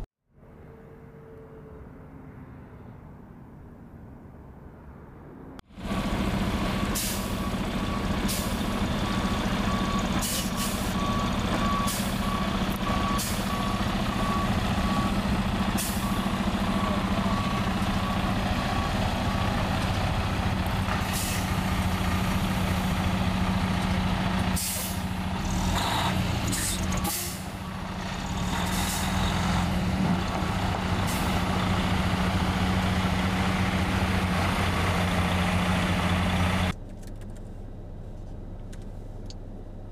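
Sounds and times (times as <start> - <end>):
diesel truck engine running: 5.7 - 39.9
backup alarm beeping: 6.8 - 19.7.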